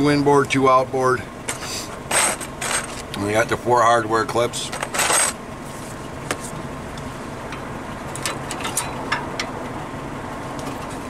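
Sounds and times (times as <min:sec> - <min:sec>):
low background hum: 0:00.0 - 0:11.0
metallic clicks of brake pads: 0:06.3 - 0:09.8.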